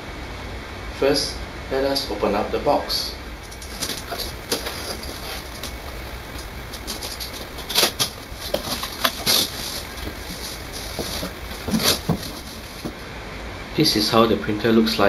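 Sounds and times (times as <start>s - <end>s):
cardboard scraping and rustling: 3.4s - 13.0s.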